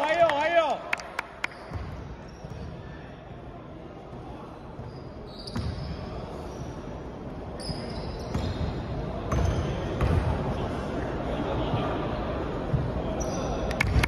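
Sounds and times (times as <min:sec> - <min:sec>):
sneaker squeaks: 0:01.4 - 0:03.0, 0:04.8 - 0:07.0, 0:07.6 - 0:10.2, 0:12.7 - 0:13.7.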